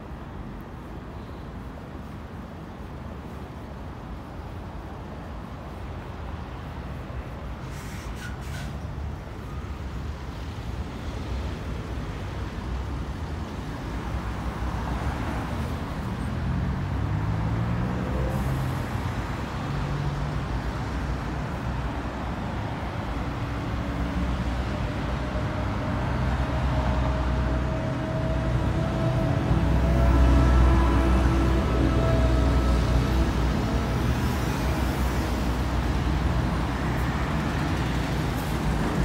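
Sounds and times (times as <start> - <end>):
city traffic passing: 0.0 - 39.0.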